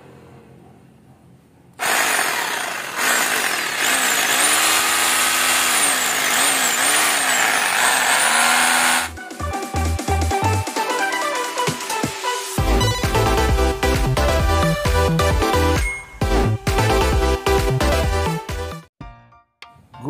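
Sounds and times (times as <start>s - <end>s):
rotary hammer drill motor: 1.8s - 9.1s.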